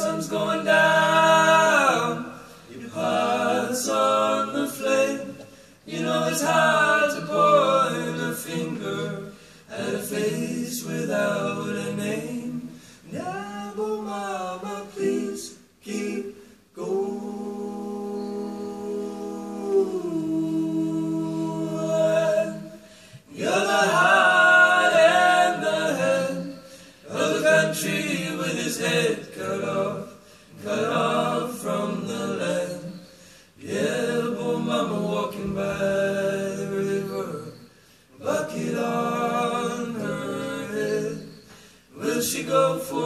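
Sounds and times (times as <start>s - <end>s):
male a cappella group singing: 0.0s - 43.0s.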